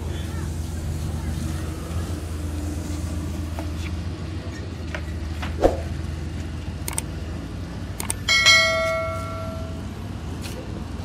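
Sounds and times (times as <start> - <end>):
steady low hum: 0.0 - 11.0
short clicks: 6.8 - 7.1, 8.0 - 8.3
bright bell chime: 8.3 - 9.8.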